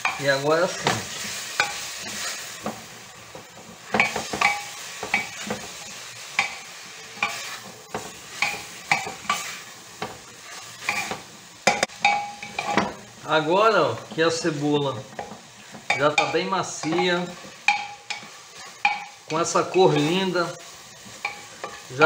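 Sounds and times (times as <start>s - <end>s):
onions sizzling: 0.0s - 22.0s.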